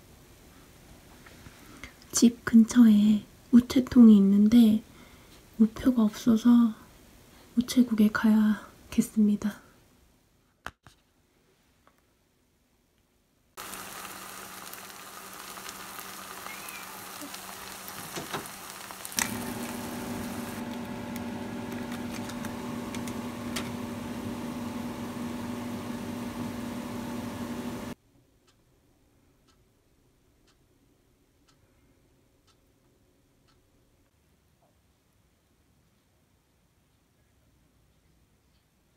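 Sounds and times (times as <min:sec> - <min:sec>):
rice sizzling in a frying pan: 0:13.6 - 0:28.0
steady hum: 0:13.6 - 0:28.0.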